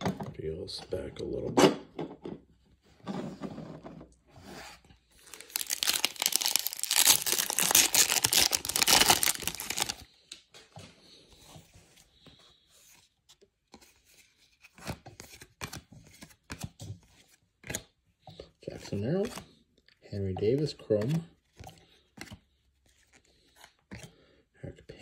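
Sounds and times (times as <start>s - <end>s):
cards clicking and rustling: 5.2s - 10.0s, 20.4s - 24.2s
wrapper tearing and crinkling: 5.2s - 10.0s.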